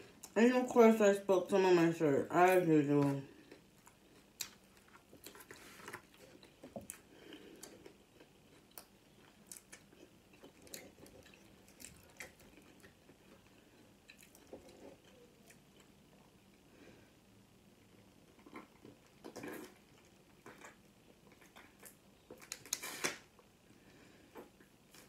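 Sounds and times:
chewing crunchy food: 0:02.9 - 0:16.6, 0:17.8 - 0:23.5.

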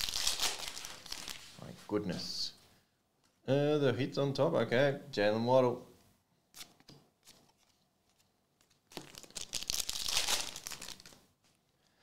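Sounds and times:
foil wrapper rustling: 0:00.0 - 0:01.6, 0:08.7 - 0:11.2.

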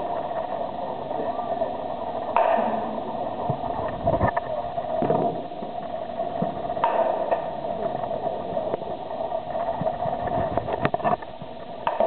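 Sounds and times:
steady hum of hall: 0:00.0 - 0:12.0
baseball bat cracking ball: 0:02.3 - 0:03.0, 0:06.8 - 0:07.5.

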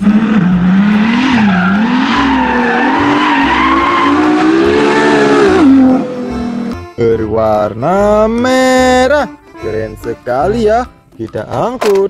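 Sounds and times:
sports car engine revving: 0:00.0 - 0:06.8.

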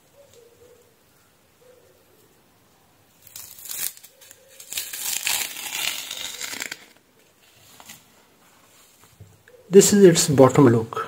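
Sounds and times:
adhesive sheet peeling crackle: 0:03.1 - 0:07.0.

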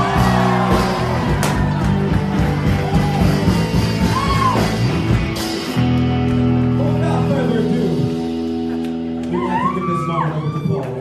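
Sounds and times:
loud music with singer: 0:00.0 - 0:05.1.

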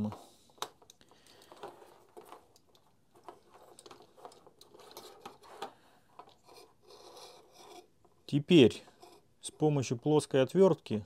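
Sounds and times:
plastic connectors clicking and scraping: 0:00.0 - 0:08.3.

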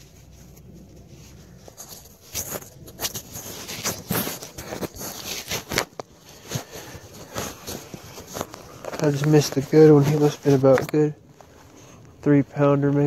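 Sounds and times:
camera being handled: 0:01.4 - 0:11.6.

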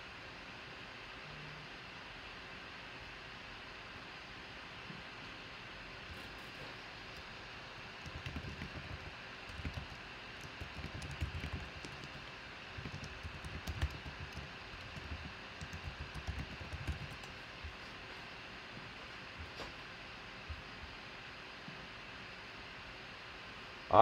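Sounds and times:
computer keyboard typing: 0:07.0 - 0:17.9.

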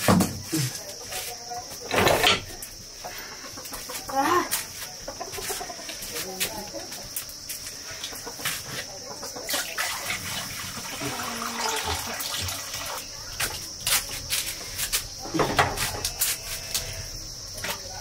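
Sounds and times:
high insect drone: 0:00.0 - 0:18.0
water pouring into a pot: 0:09.5 - 0:13.1.

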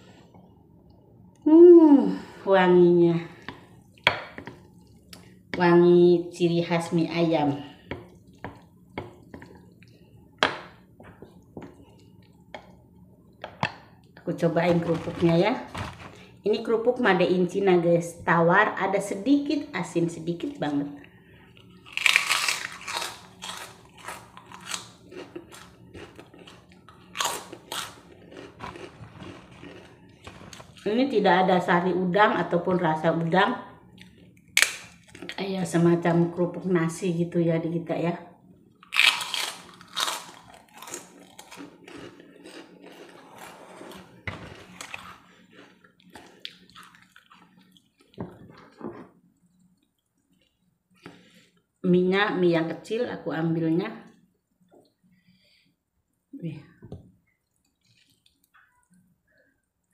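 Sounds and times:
crunchy chewing: 0:21.6 - 0:30.9, 0:38.8 - 0:48.8
cracker crunching: 0:21.8 - 0:30.9, 0:34.0 - 0:35.4, 0:38.8 - 0:48.2.

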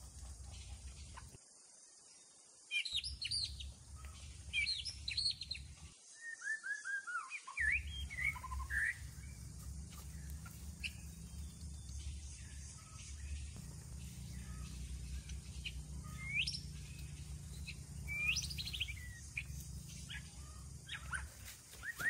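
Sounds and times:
small birds chirping: 0:00.0 - 0:01.4, 0:02.1 - 0:22.0
low background rumble: 0:07.8 - 0:21.4.

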